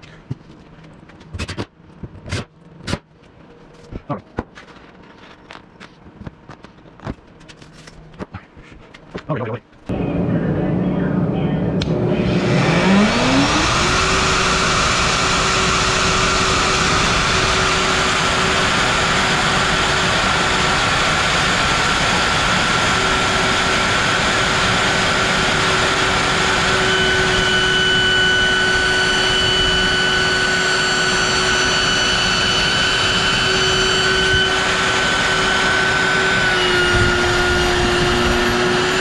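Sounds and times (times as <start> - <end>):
router whining: 9.9 - 39.0.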